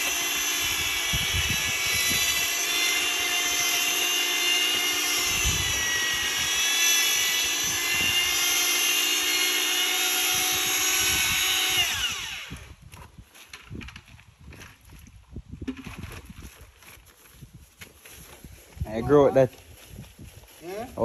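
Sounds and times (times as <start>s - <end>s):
electric drill mixer whining: 0.0s - 12.8s.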